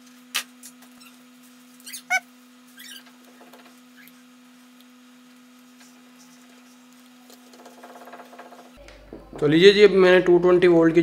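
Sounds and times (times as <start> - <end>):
short sharp squeak: 1.8 - 3.1.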